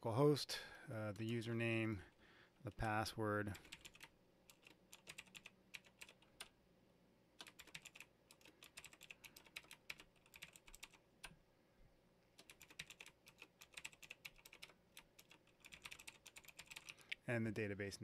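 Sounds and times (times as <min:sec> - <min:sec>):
faint keyboard typing: 0:01.1 - 0:02.9, 0:03.5 - 0:06.6, 0:07.4 - 0:11.4, 0:12.2 - 0:17.3.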